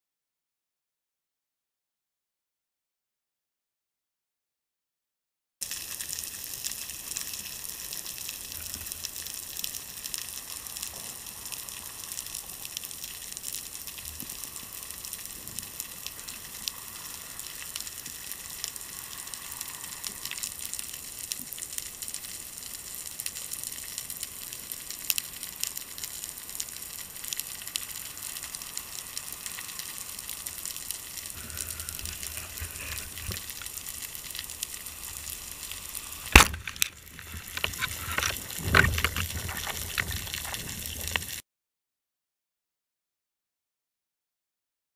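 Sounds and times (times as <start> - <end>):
snapping shrimp crackle: 30.8 - 41.4.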